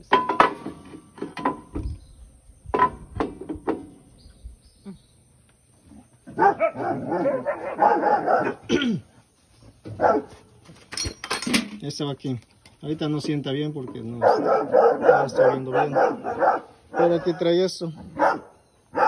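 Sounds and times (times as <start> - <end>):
metal clicks and knocks: 10.9 - 14.1.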